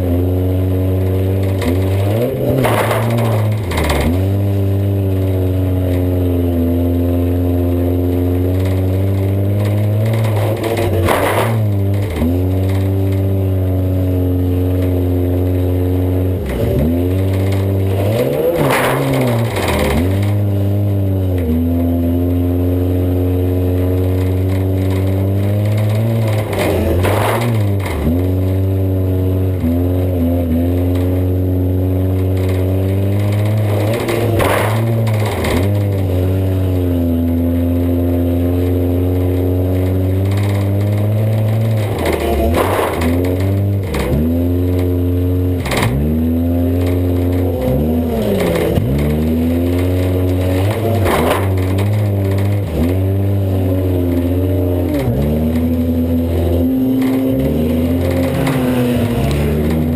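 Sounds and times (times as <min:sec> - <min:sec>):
car engine running hard: 0:00.0 - 0:59.9.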